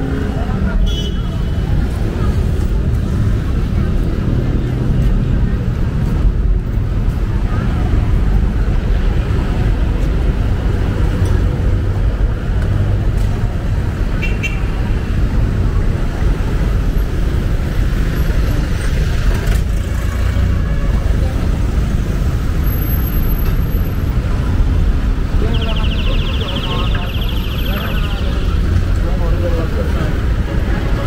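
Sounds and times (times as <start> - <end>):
street traffic rumble: 0.0 - 31.0
brief high tone: 25.5 - 28.6.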